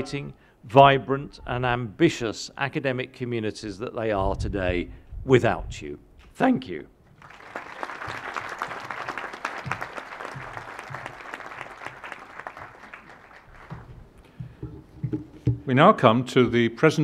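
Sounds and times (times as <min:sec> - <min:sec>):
audience applauding: 0:07.2 - 0:14.2.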